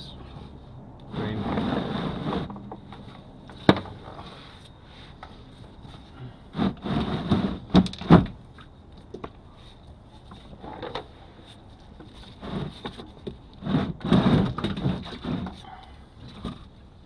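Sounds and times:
metal tools knocking and scraping: 7.8 - 8.2.

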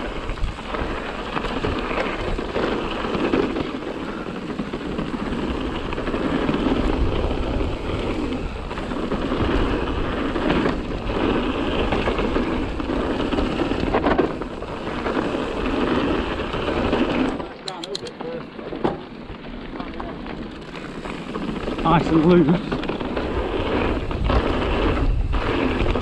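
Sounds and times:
wind on microphone: 0.0 - 17.4, 20.8 - 26.0
bike knocks and rattles: 0.0 - 26.0
tyres rumbling on gravel: 0.0 - 26.0.

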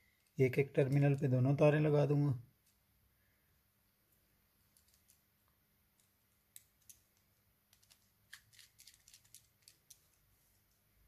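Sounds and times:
small clicks and ticks: 4.7 - 5.2, 6.0 - 10.8.

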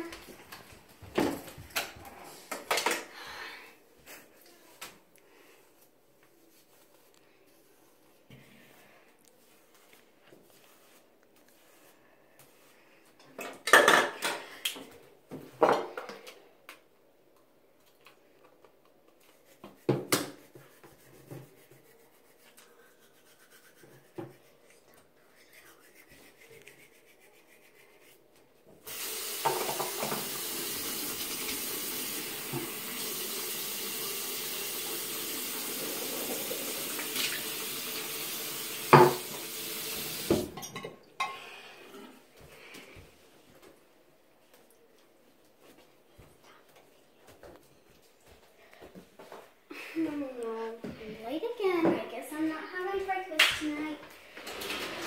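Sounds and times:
sink tap running: 28.9 - 40.5.

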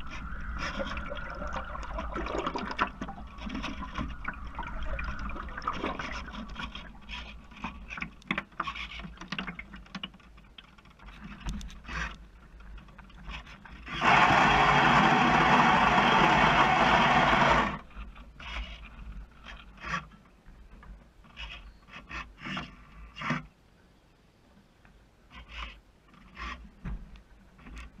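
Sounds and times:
water splashing against hull: 0.0 - 14.0
servo whirring: 13.9 - 17.8.

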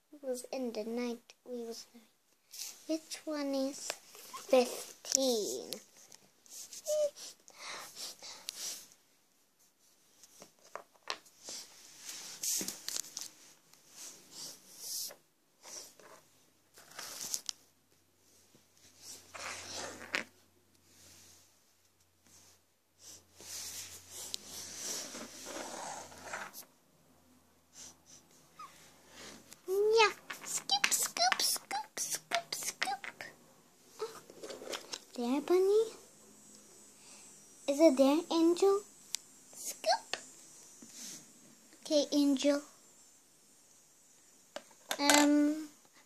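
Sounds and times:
rustling and scraping of objects: 2.4 - 9.0, 9.6 - 22.6, 23.3 - 26.7, 28.7 - 33.4, 34.0 - 36.0
plastic toys rustling and clicking: 29.9 - 33.3, 34.0 - 35.1.

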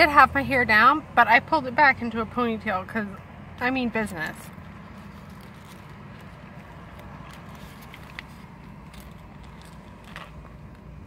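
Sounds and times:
low car cabin hum: 0.0 - 11.0
paper wrapper crackles: 4.4 - 10.5
person chewing sandwich: 4.5 - 10.8.

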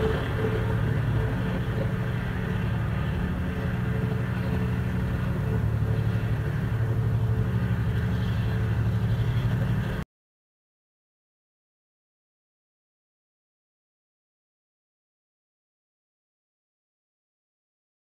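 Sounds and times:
ferry engine droning: 0.0 - 10.0.

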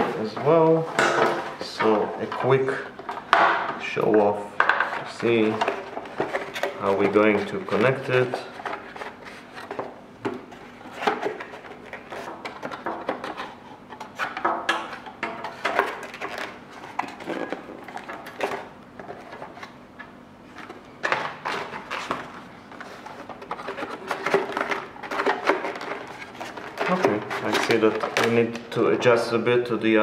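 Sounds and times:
knocks and clicks of handled parts: 0.3 - 8.8, 9.6 - 22.3.

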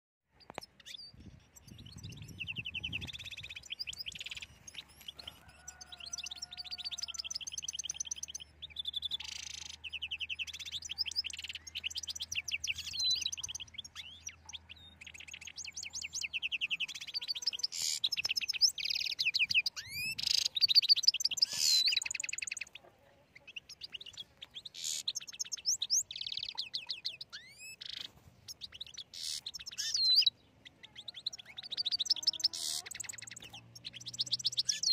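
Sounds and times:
goldfinch twittering song: 0.3 - 34.9.

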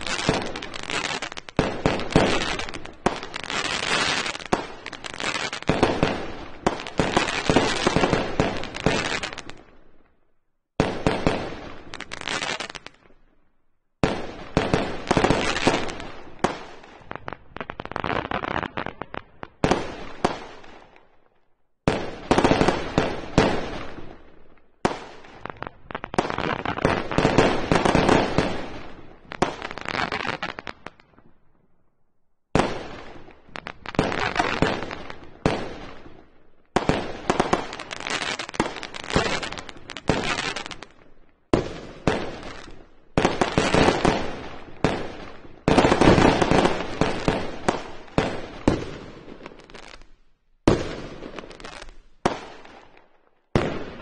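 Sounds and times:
fireworks crackling: 0.0 - 9.7, 10.8 - 13.1, 14.0 - 20.8, 24.9 - 31.1, 32.6 - 50.1, 50.7 - 54.0
fireworks bangs: 0.0 - 9.8, 32.5 - 50.0, 50.6 - 54.0.

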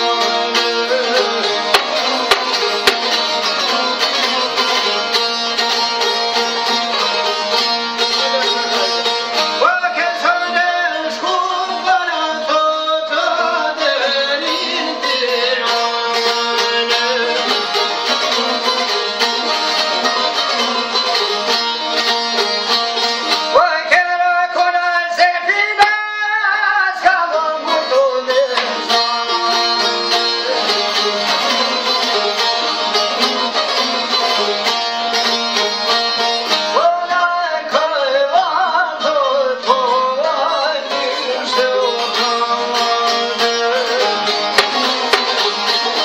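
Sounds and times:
man singing: 0.0 - 5.4, 8.2 - 19.0, 23.3 - 34.2, 36.5 - 46.0
plucked lutes and guitar: 0.0 - 46.0.

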